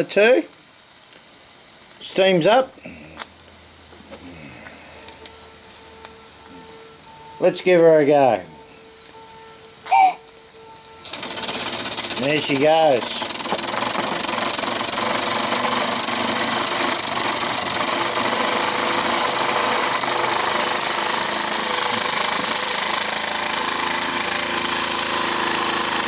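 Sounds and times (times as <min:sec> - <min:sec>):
steam hissing: 0:09.9 - 0:26.0
toy steam engine chatter: 0:10.8 - 0:26.0.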